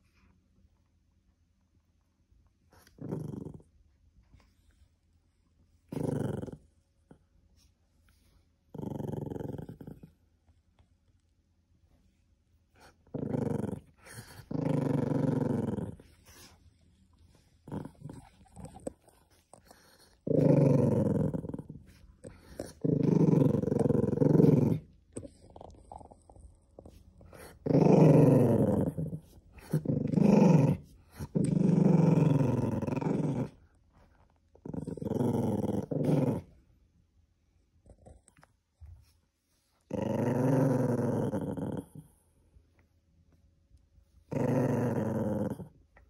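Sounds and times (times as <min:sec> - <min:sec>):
dog growling: 0:02.7 - 0:03.7, 0:05.9 - 0:06.7, 0:08.7 - 0:10.2, 0:12.8 - 0:16.6, 0:17.6 - 0:33.7, 0:34.6 - 0:36.6, 0:39.9 - 0:42.3, 0:44.3 - 0:45.8.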